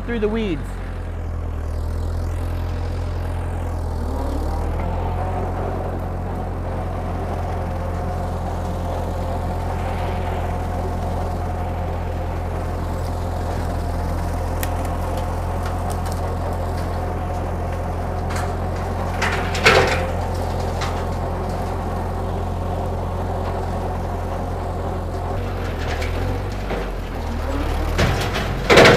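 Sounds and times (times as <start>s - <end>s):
tractor engine running: 0.0s - 28.9s
loud clatter: 4.7s - 22.3s, 25.1s - 28.9s.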